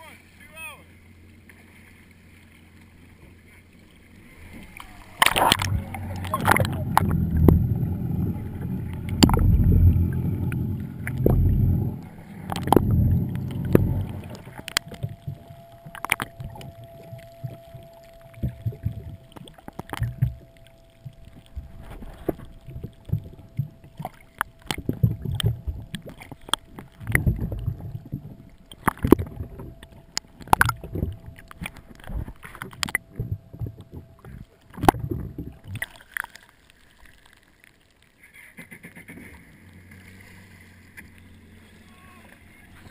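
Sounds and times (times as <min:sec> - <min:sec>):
faint steady tone: 0:00.0 - 0:38.6, 0:39.2 - 0:42.9
water churning underwater: 0:00.0 - 0:42.9
sharp clicks and knocks: 0:05.2 - 0:36.0.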